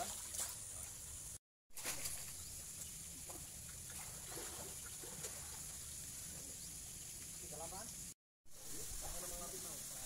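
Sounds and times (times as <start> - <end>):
light water splashes: 0.0 - 1.1, 1.7 - 7.9
steady outdoor hiss: 0.0 - 10.0.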